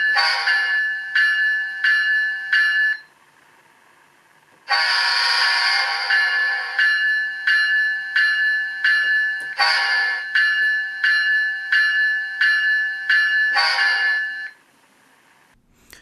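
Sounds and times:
locomotive bell ringing: 0.0 - 3.1, 4.7 - 14.6
horn blast: 4.7 - 6.2, 9.6 - 10.3.

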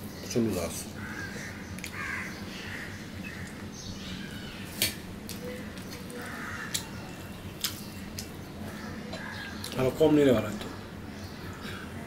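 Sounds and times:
crows cawing: 1.0 - 4.7, 6.1 - 7.0, 8.7 - 9.6.

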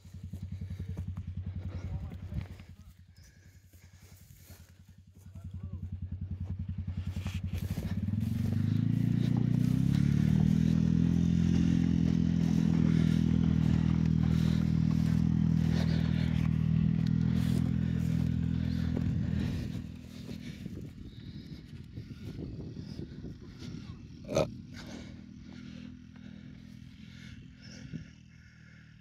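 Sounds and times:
vehicle engine running: 0.0 - 29.0.

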